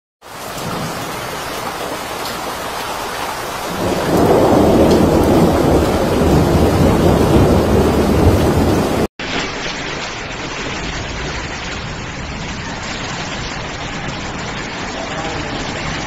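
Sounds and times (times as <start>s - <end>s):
torrential rain pouring: 0.2s - 16.0s
deep thunder rumble: 3.7s - 9.1s.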